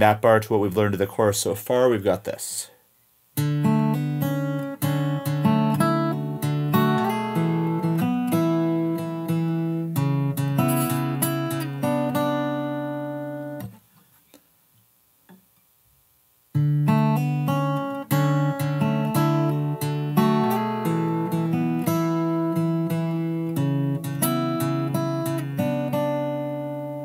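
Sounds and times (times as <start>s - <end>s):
fingerpicked acoustic guitar: 3.4s - 14.5s, 16.5s - 27.0s.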